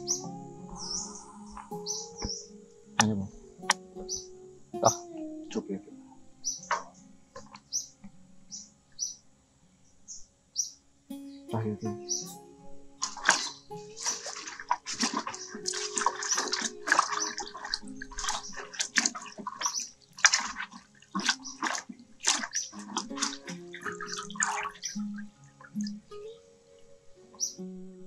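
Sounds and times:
water splashing in metal basin: 0:13.0 - 0:25.0
water dripping into basin: 0:13.0 - 0:26.4.

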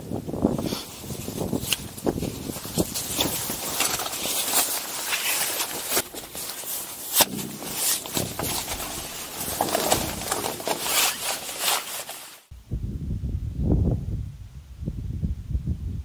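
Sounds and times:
camping gear rustling and knocking: 0:00.0 - 0:12.5.

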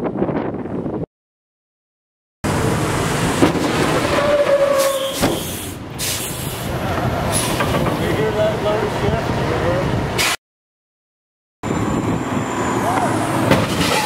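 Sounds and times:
semi truck rumbling: 0:02.4 - 0:10.4, 0:11.6 - 0:14.0.

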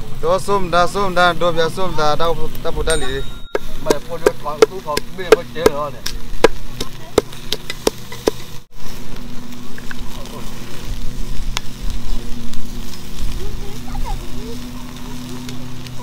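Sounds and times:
steady hum and hiss: 0:00.0 - 0:16.0
pestle pounding in wooden mortar: 0:03.4 - 0:08.6.

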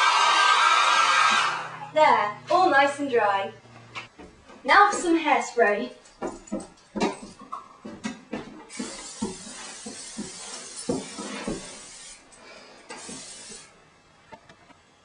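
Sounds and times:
aerosol can spraying hiss: 0:08.7 - 0:12.3, 0:12.9 - 0:13.7.

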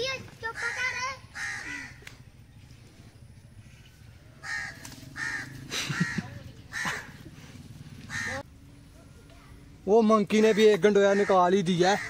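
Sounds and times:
crow cawing: 0:00.4 - 0:02.1, 0:04.4 - 0:07.2, 0:08.0 - 0:08.5, 0:10.4 - 0:12.0.

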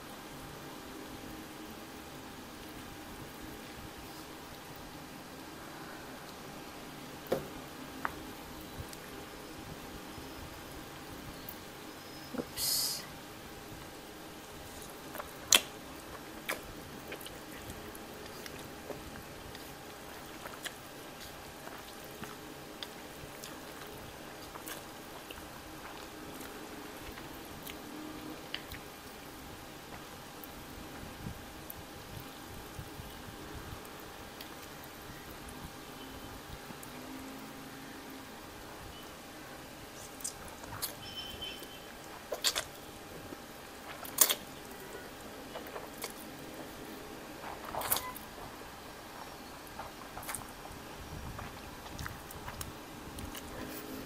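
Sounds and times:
electric fan humming: 0:00.0 - 0:54.0
chewing: 0:14.5 - 0:29.3, 0:40.0 - 0:54.0
wet mouth clicks: 0:40.0 - 0:41.0, 0:42.3 - 0:42.8, 0:44.0 - 0:44.5
wet mouth clicks and smacks: 0:42.3 - 0:42.8, 0:43.9 - 0:44.5.

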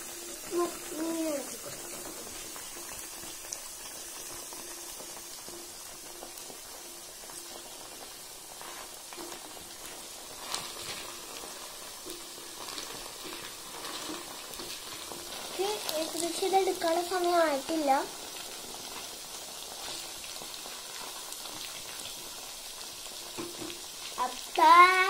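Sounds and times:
potato sticks frying in oil: 0:00.0 - 0:25.0.

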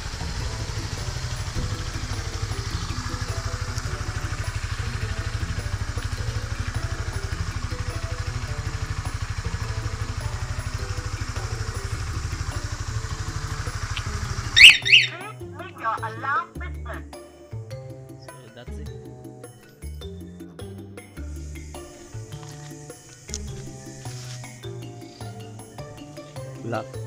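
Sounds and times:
motorcycle engine idling: 0:00.0 - 0:18.2, 0:18.9 - 0:27.0
high-pitched chirp: 0:13.9 - 0:15.4.

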